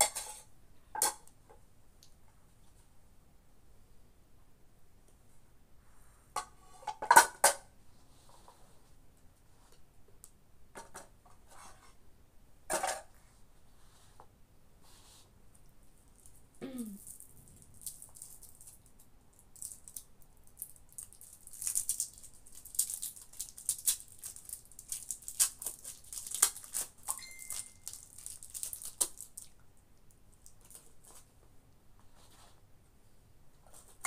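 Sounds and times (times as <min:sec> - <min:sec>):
fried fish crackling under hands: 0:27.9 - 0:29.6.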